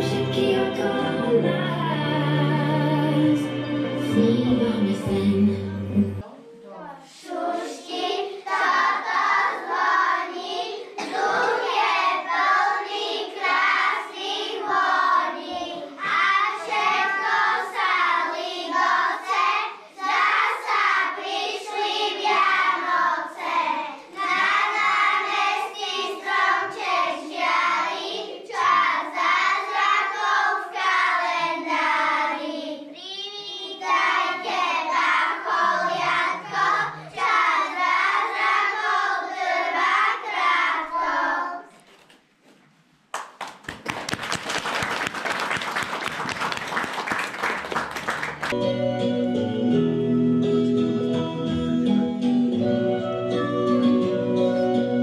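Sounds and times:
children singing in unison: 0:00.0 - 0:06.3, 0:07.1 - 0:32.9, 0:33.8 - 0:41.7.

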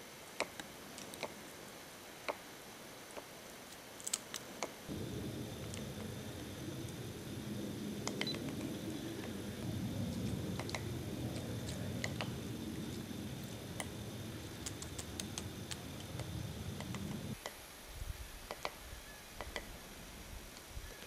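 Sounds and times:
low rumble: 0:04.9 - 0:17.4
woodpecker tapping on tree: 0:08.0 - 0:09.4, 0:10.2 - 0:17.6, 0:18.5 - 0:18.8, 0:19.4 - 0:19.8.

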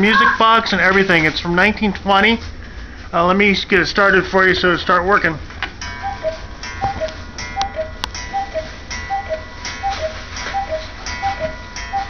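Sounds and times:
cuckoo clock calling: 0:05.8 - 0:12.0.

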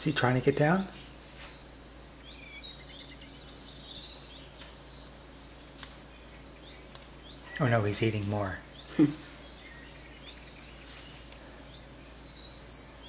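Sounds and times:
low steady hum: 0:00.0 - 0:13.0
songbird chirps: 0:00.0 - 0:13.0
sharp tick: 0:05.8 - 0:06.0.

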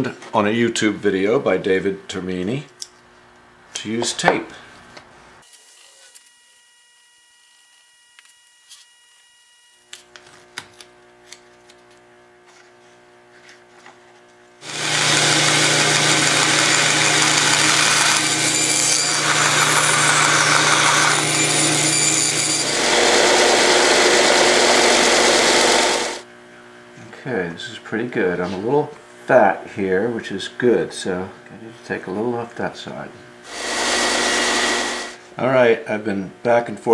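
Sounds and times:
bandsaw cutting wood: 0:14.6 - 0:26.2, 0:33.5 - 0:35.2
sander grinding wood: 0:14.6 - 0:26.2, 0:33.5 - 0:35.2.

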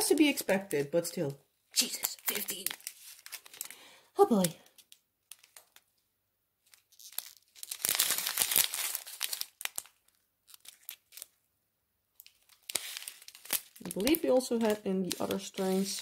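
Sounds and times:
plastic bags crinkling: 0:01.8 - 0:05.9, 0:06.6 - 0:11.4, 0:12.2 - 0:16.0.

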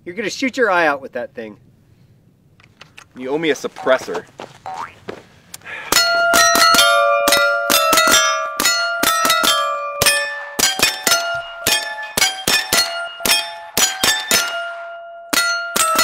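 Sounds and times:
bullets ringing steel plates: 0:05.9 - 0:16.0.

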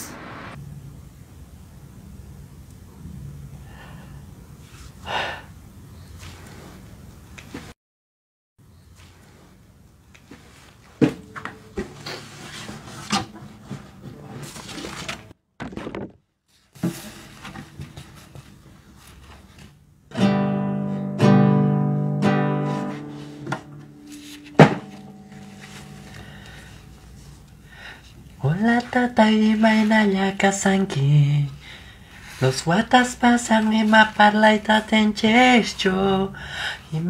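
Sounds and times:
plucked guitar notes: 0:20.1 - 0:26.6
strummed guitar chords: 0:20.1 - 0:26.8
guitar handling knocks: 0:23.4 - 0:25.6
sharp knock: 0:24.6 - 0:25.0.

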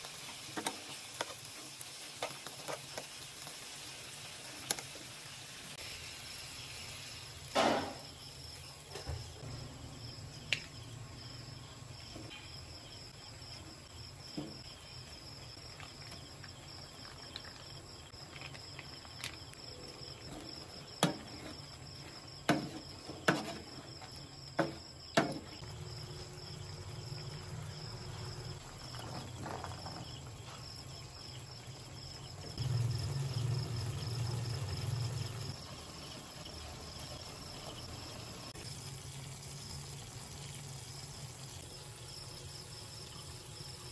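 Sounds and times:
shrimp sizzling in frying pan: 0:00.0 - 0:08.8
low simmering rumble: 0:25.6 - 0:43.9.

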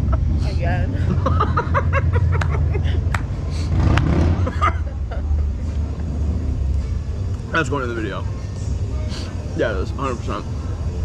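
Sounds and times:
steady low rumble: 0:00.0 - 0:11.0
person laughing: 0:01.0 - 0:03.1, 0:04.4 - 0:05.7.

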